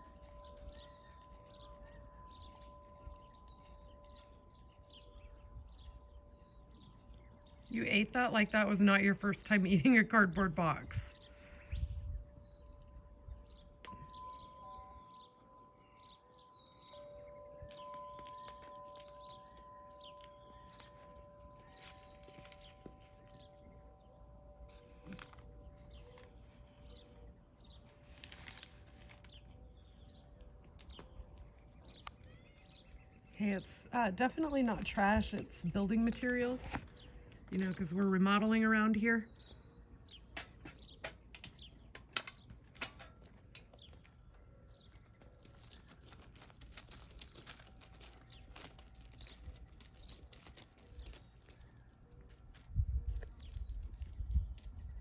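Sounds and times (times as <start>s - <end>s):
small birds chirping: 0.0s - 55.0s
goat hooves on gravel: 17.0s - 38.6s, 40.1s - 55.0s
plastic bag rustling: 17.5s - 33.0s, 44.9s - 55.0s.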